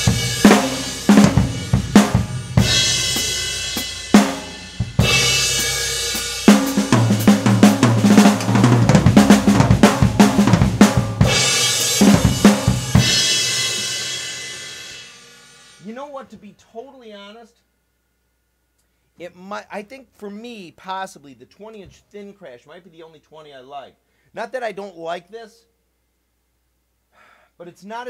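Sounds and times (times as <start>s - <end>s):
drum fills: 0.0s - 16.0s.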